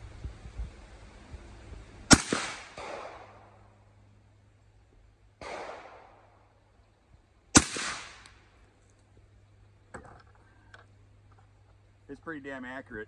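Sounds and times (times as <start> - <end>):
rifle shot: 2.1 - 3.6, 5.4 - 6.3, 7.5 - 8.4.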